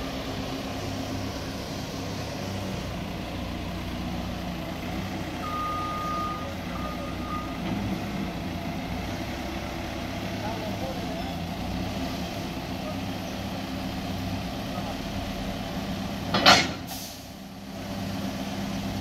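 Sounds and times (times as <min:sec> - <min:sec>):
diesel engine running: 0:00.0 - 0:19.0
high reversing beep: 0:05.4 - 0:07.6.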